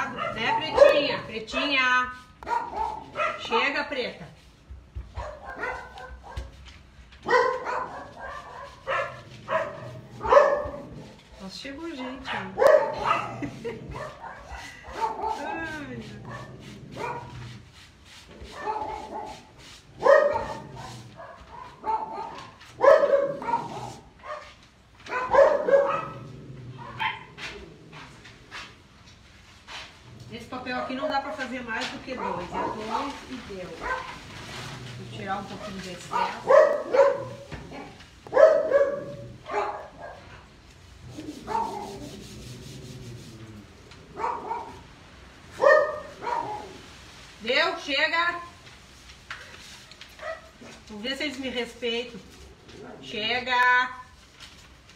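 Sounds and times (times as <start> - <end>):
dogs barking: 0.0 - 1.8, 2.4 - 3.7, 5.1 - 6.6, 7.2 - 11.1, 12.2 - 17.4, 18.5 - 27.4, 32.1 - 33.2, 33.8 - 34.2, 35.6 - 40.4, 41.4 - 42.0, 44.2 - 44.9, 45.6 - 46.8.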